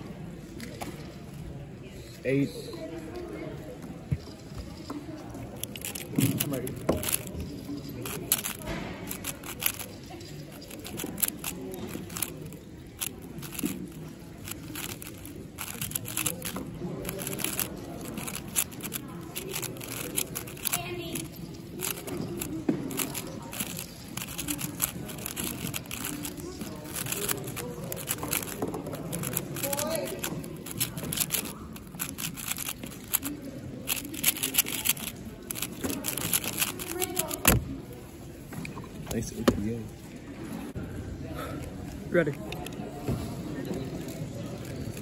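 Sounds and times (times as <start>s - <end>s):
plastic puzzle cube clicking: 5.6s - 7.3s, 7.9s - 37.6s.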